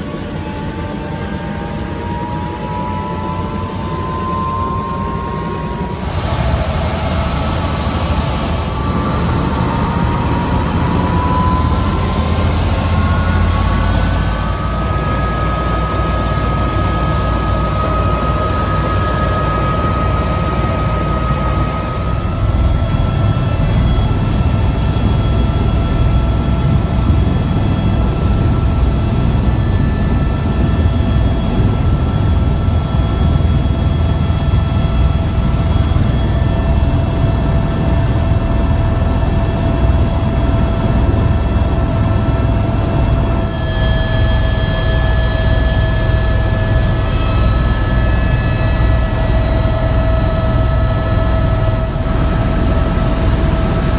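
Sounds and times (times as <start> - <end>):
helicopter rotor rumble: 0.0 - 53.9
helicopter turbine whine: 0.0 - 53.9.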